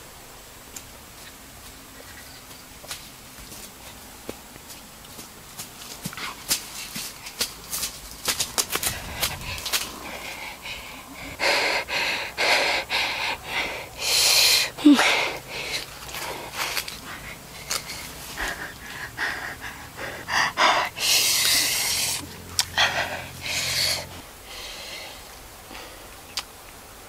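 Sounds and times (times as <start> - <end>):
man breathing heavily: 5.8 - 26.3.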